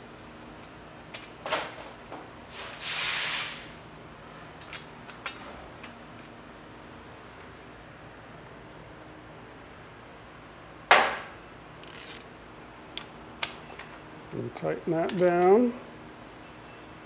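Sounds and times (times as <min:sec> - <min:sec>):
brief hiss: 0:02.5 - 0:03.7
metal knock: 0:10.9 - 0:11.3
light metal clicks: 0:15.0 - 0:15.6.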